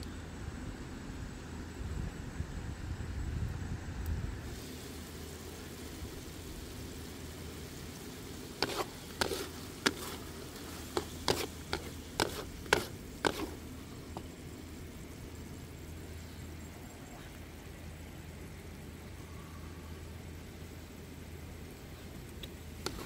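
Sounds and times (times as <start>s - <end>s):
faint sizzle: 3.4s - 23.0s
spatula stirring in a metal wok: 4.6s - 14.4s, 22.8s - 23.0s.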